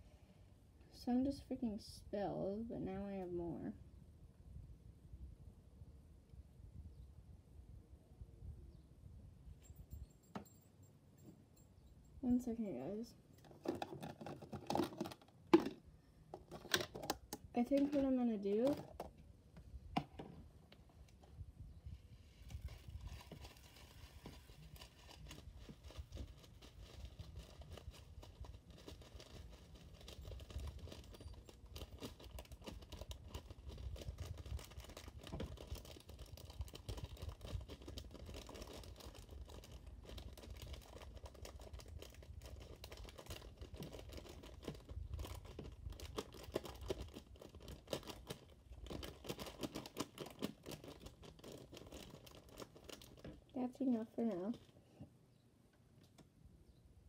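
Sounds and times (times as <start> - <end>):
plastic bag crinkling: 13.4 - 15.8, 16.4 - 19.2, 22.4 - 54.7.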